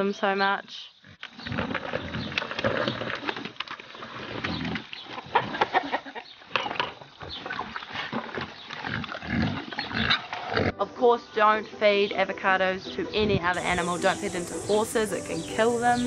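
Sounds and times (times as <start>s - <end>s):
pigs chomping and crunching: 1.3s - 5.8s, 6.6s - 10.8s
pigs grunting: 7.4s - 10.8s.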